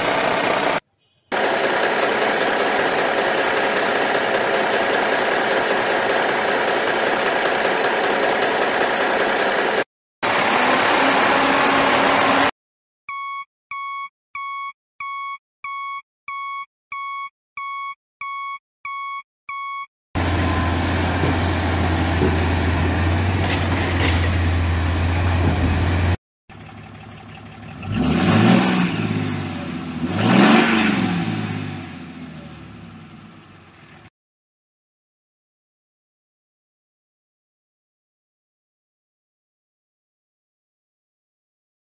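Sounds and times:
truck engine revving: 0:00.0 - 0:00.8, 0:01.4 - 0:12.5, 0:20.2 - 0:32.7
reversing alarm beeping: 0:13.1 - 0:19.9.

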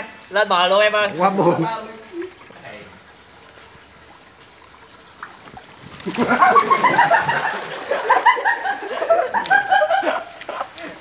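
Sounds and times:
pool water splashing: 0:00.0 - 0:11.0
people laughing: 0:06.1 - 0:11.0.

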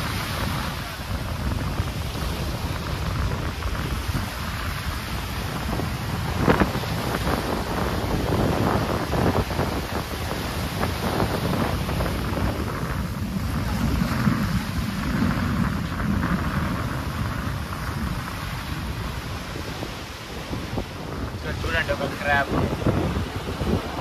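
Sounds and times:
wind blowing across microphone: 0:00.0 - 0:24.0.

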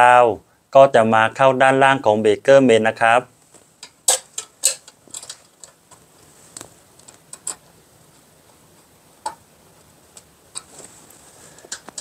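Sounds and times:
wire clicking and tapping: 0:03.5 - 0:09.5, 0:10.1 - 0:10.9, 0:11.6 - 0:12.0.

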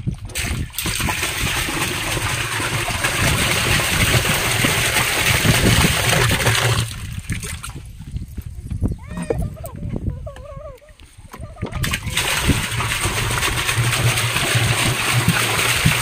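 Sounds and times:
water pouring into a drum: 0:00.0 - 0:07.8, 0:11.8 - 0:16.0.

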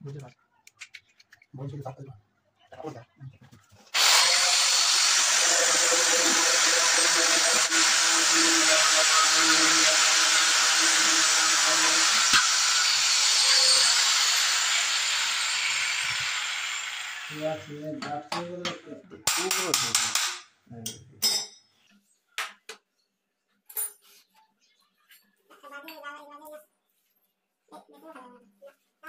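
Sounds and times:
power drill whining: 0:03.9 - 0:17.8.

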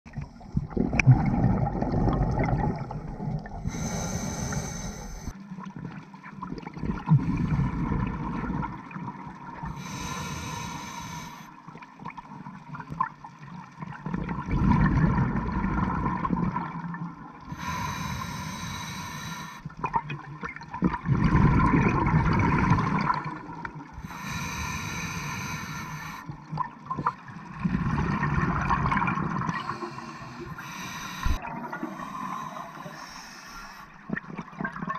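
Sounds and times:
gurgling exhaled bubbles: 0:00.1 - 0:04.7, 0:05.8 - 0:10.2, 0:13.8 - 0:18.9, 0:19.6 - 0:34.9
regulator inhale hiss: 0:03.6 - 0:05.3, 0:09.7 - 0:11.5, 0:17.5 - 0:19.7, 0:24.0 - 0:26.3, 0:29.6 - 0:34.0.

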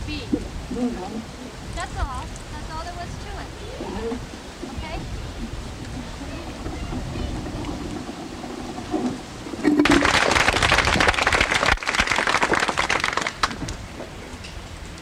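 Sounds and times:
audience applauding: 0:09.6 - 0:13.6.

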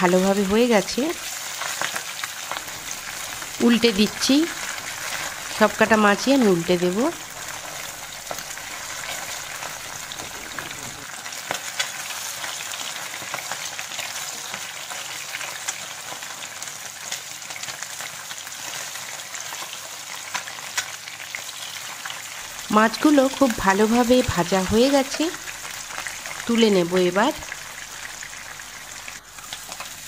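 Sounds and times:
fish sizzling in a frying pan: 0:00.0 - 0:30.0.

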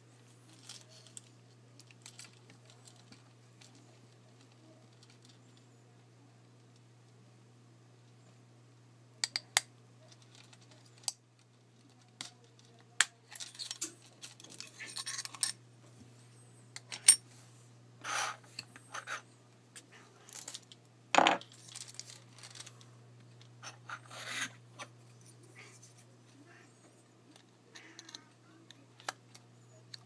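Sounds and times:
scratchy rubbing: 0:23.6 - 0:24.6.

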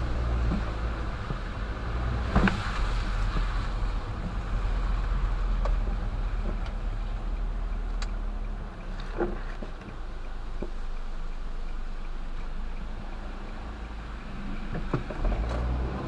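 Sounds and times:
engine and road rumble: 0:00.0 - 0:16.0
light ticks: 0:05.4 - 0:15.6.

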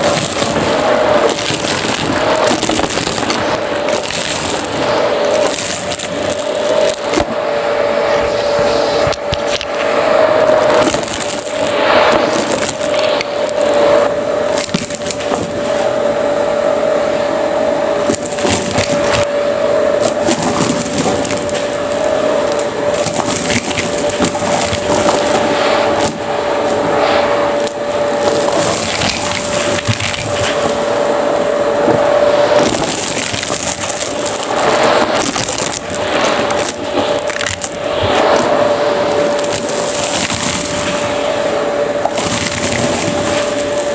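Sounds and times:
debris rattling through hose: 0:00.0 - 0:07.4, 0:10.4 - 0:15.8, 0:18.0 - 0:19.3, 0:20.0 - 0:43.9
vacuum cleaner running: 0:00.0 - 0:43.9.

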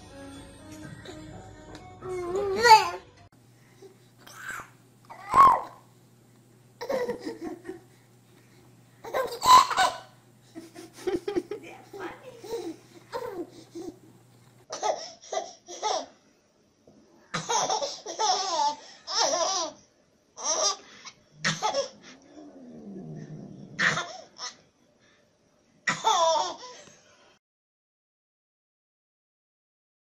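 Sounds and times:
baby laughing: 0:06.8 - 0:07.9, 0:09.0 - 0:14.1, 0:14.7 - 0:16.2, 0:17.4 - 0:19.8, 0:25.9 - 0:26.7.

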